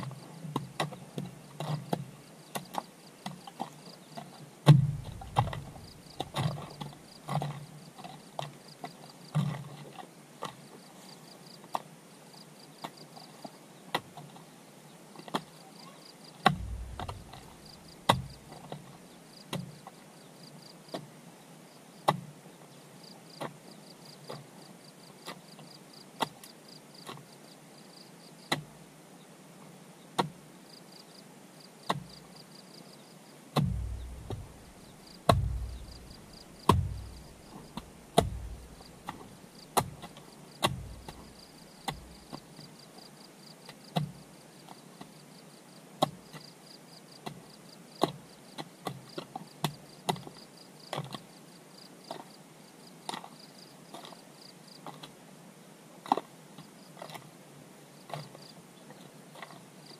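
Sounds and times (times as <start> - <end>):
insects chirping: 0.0 - 9.8, 10.4 - 13.7, 15.2 - 21.0, 23.0 - 28.5, 30.6 - 54.9, 57.9 - 59.9
hand tool strikes: 4.7 - 6.4, 16.4 - 18.4, 33.6 - 39.2, 40.6 - 41.3.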